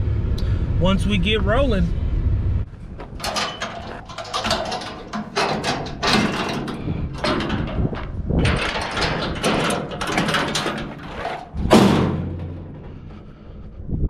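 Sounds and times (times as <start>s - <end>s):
metal ramp rattling and clanking: 3.0s - 13.5s.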